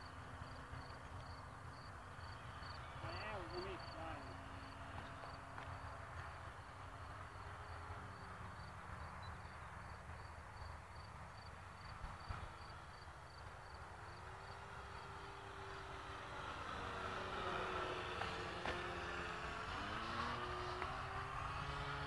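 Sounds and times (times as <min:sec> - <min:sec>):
model plane motor and propeller: 0:00.0 - 0:22.0.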